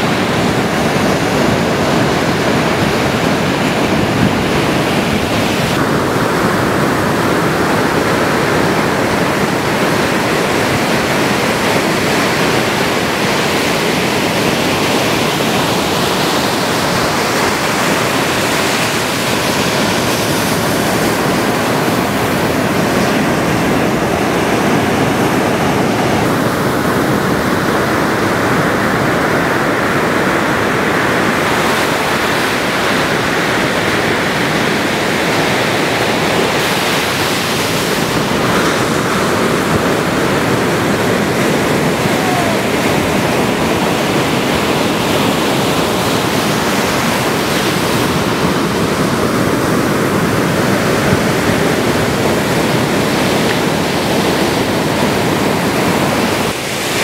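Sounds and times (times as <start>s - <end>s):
ocean waves breaking: 0.0s - 57.0s.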